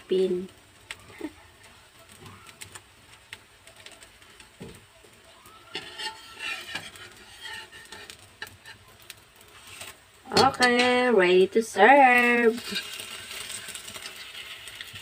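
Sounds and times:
utensils scraping a pan: 0:05.7 - 0:11.0, 0:12.5 - 0:14.6.

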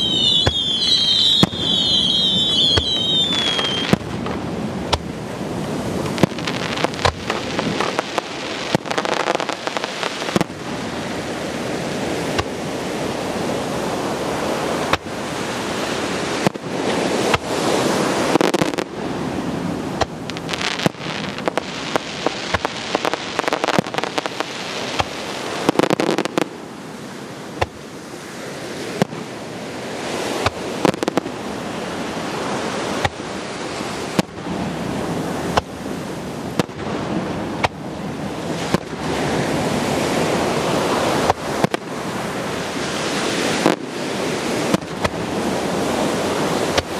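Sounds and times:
fireworks bursting: 0:00.0 - 0:26.7, 0:28.8 - 0:37.8, 0:38.4 - 0:46.9
steady rushing noise: 0:00.0 - 0:46.9.

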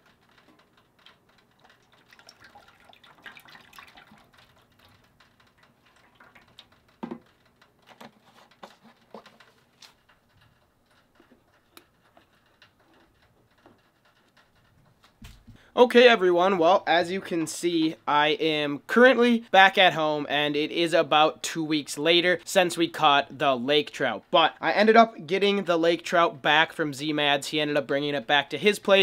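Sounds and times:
oil pouring into a fryer: 0:00.2 - 0:08.4.

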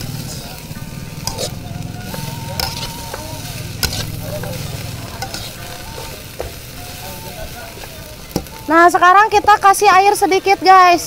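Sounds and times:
metal spatula scraping a wok: 0:00.0 - 0:08.6
food sizzling in a wok: 0:00.0 - 0:11.0
spatula clanking against pan: 0:01.2 - 0:06.7.

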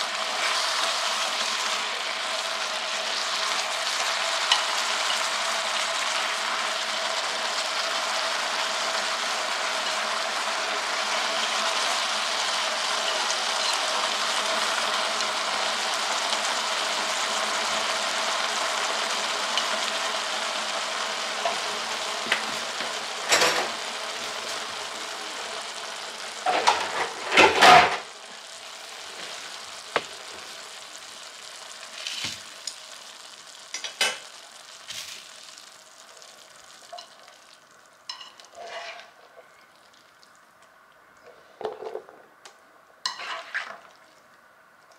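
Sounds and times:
food sizzling in a pan: 0:00.0 - 0:44.9
chopsticks scraping a pan: 0:38.1 - 0:39.6, 0:43.0 - 0:43.8.

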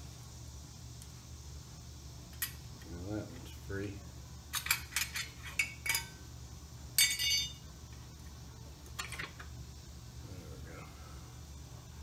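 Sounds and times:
metal tools clinking: 0:04.5 - 0:06.2, 0:07.0 - 0:07.6.

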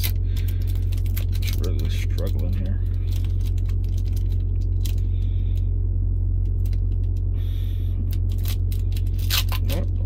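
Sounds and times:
foil wrapper crinkling: 0:00.0 - 0:05.2, 0:08.0 - 0:09.9
low engine hum: 0:00.0 - 0:10.0.

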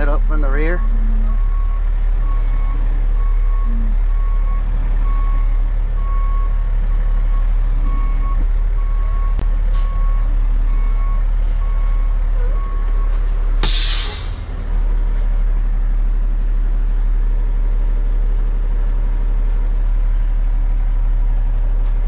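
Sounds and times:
truck backup alarm beeping: 0:00.0 - 0:14.8
diesel engine rumble: 0:00.0 - 0:22.0.

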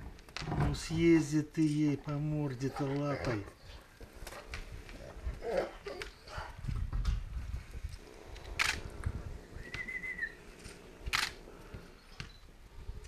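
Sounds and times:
high whistle-like tone: 0:09.6 - 0:10.4.

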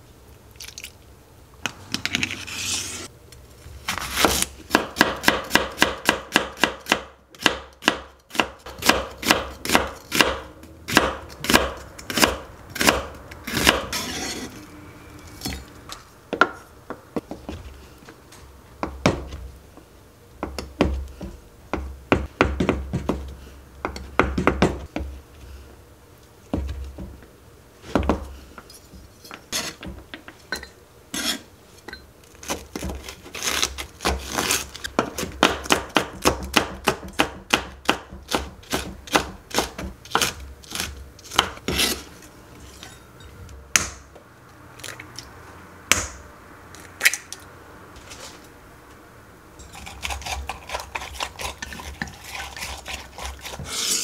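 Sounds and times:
knife chopping on plastic board: 0:04.0 - 0:13.9, 0:20.4 - 0:25.1, 0:32.4 - 0:42.0.

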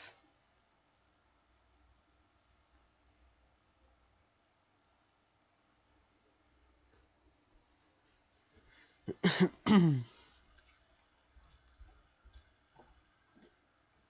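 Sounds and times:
person making throat noises: 0:09.1 - 0:10.2
faint clicks: 0:11.4 - 0:12.6.

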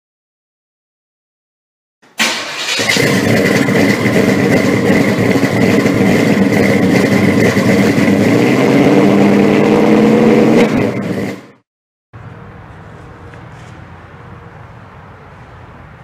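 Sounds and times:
loud engine running: 0:02.2 - 0:11.6.

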